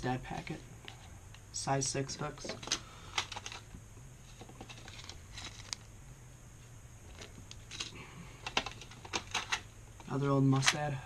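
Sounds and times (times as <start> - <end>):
paper packets crinkling: 4.6 - 5.8
plastic case clicking: 7.8 - 9.6.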